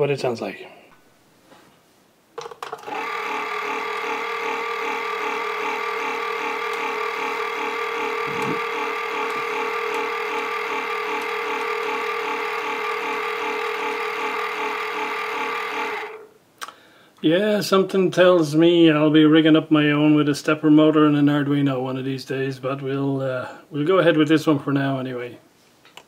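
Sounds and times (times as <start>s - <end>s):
motor humming with throbbing gear whine: 2.9s - 16.3s.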